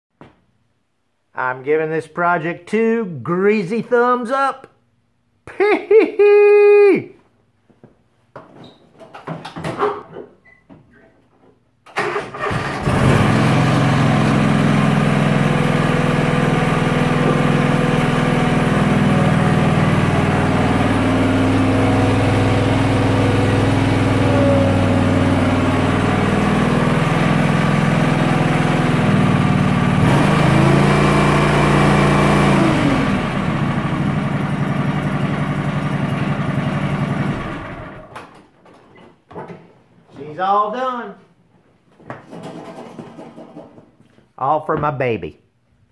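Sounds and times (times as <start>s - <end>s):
garden tractor engine running: 12.0s - 38.1s.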